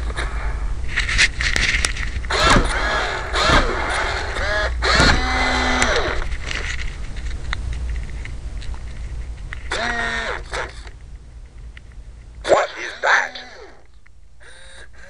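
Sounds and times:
low hum: 0.0 - 15.0
toy robot electronic vocal calls: 12.5 - 13.9.

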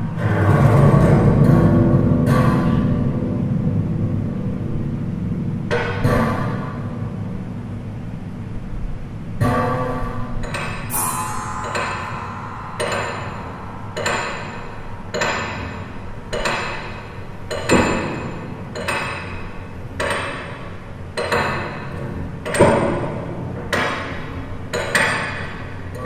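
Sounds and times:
steady low hum: 0.0 - 23.6
ringing percussive hits: 10.9 - 18.6.

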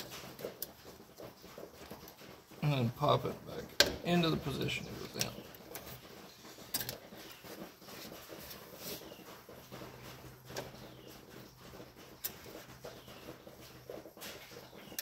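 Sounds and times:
rubber grommet clicks and rustles: 3.7 - 15.0.

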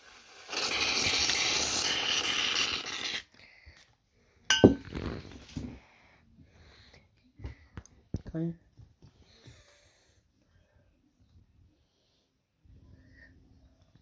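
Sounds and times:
metal spoon clinking on plate: 4.5 - 4.8.

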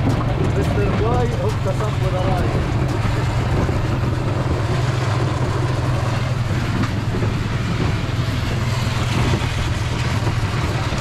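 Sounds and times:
rushing noise: 0.0 - 11.0
vehicle engine drone: 0.0 - 11.0.

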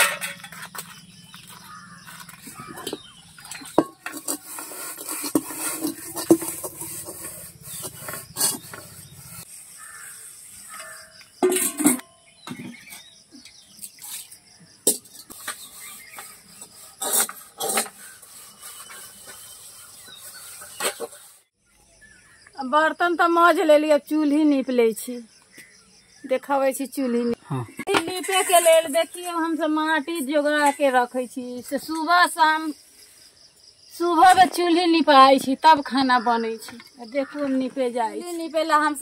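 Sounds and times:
metal utensils clanking: 0.0 - 8.9, 10.8 - 12.2
scrubbing metal pots: 0.0 - 12.9, 13.8 - 21.4, 27.8 - 31.1.

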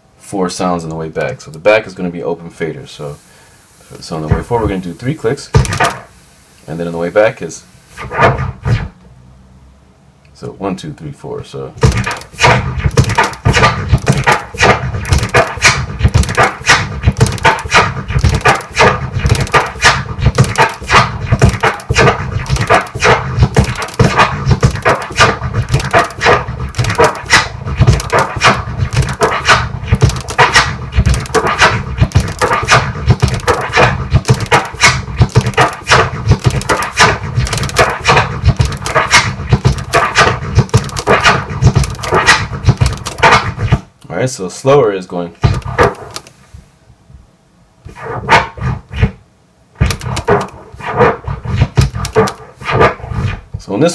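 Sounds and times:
turntable scratching drum sample: 4.0 - 6.1, 8.0 - 8.9, 11.8 - 43.9, 45.4 - 46.3, 49.8 - 53.4
crossfader clicks: 5.6 - 6.0, 11.8 - 43.4, 45.4 - 46.4, 49.8 - 50.6, 51.8 - 52.4.

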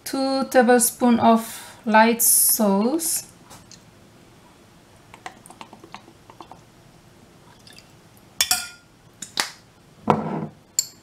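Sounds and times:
spoon clinking against bowl: 8.4 - 8.8, 10.8 - 11.0.

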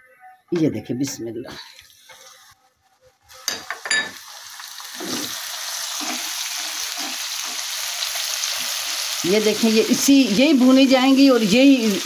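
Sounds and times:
chillies sizzling in hot oil: 3.2 - 12.0
spatula stirring in a wok: 4.8 - 8.8.

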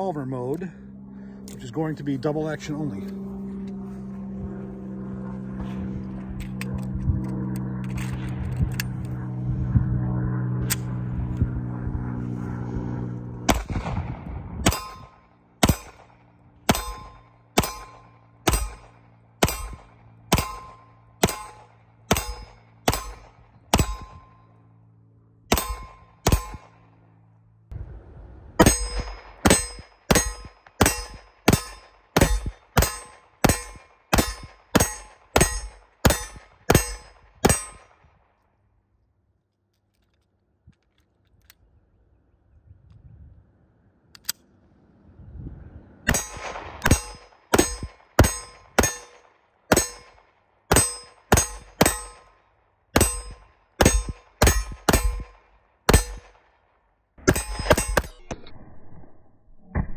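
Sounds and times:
pistol shots: 13.5 - 24.3, 25.5 - 26.9, 28.6 - 38.1, 46.1 - 52.4, 53.0 - 56.6, 57.2 - 58.3
bullets ringing on steel target: 14.7 - 16.1, 16.7 - 24.6, 25.5 - 26.9, 28.6 - 37.9, 46.1 - 52.4, 53.0 - 56.4, 57.2 - 58.4.

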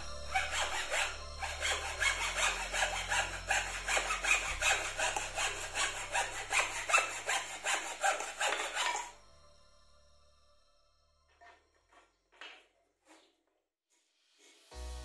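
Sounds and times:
hacksaw cutting wood: 0.0 - 9.2.

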